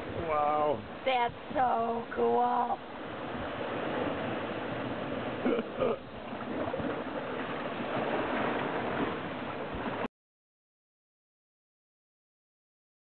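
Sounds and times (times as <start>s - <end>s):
surf rushing: 0.0s - 10.1s.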